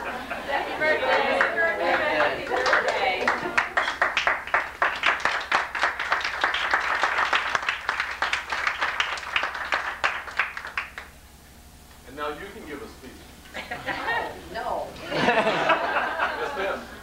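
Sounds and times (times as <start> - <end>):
crowd applauding: 0.0 - 11.1.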